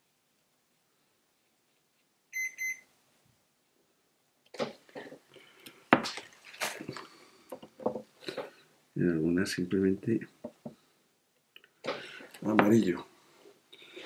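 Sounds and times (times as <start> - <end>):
short electronic beeps: 2.4 - 2.8.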